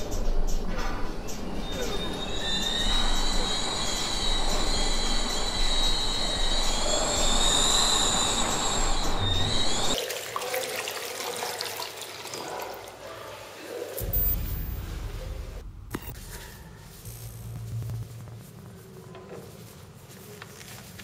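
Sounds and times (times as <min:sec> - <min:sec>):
high wavering screech: 0:01.3 - 0:10.0
tap water running: 0:10.0 - 0:12.8.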